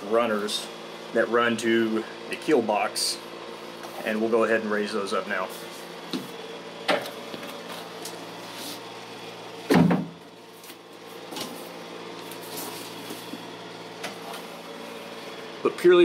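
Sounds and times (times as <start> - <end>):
loud thump: 9.7 - 10.2.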